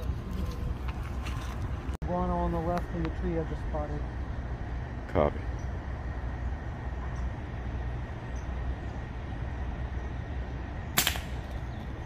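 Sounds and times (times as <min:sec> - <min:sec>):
air rifle shot: 0:11.0 - 0:11.5.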